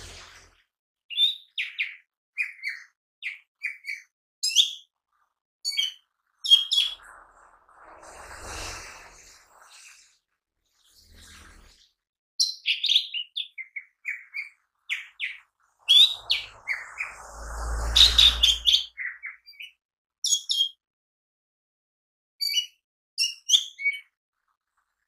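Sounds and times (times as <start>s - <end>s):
low rumbling noise: 0.0s - 0.6s, 7.0s - 9.8s, 15.8s - 18.8s
bird singing chirps and whistles: 5.7s - 7.0s, 12.4s - 20.8s.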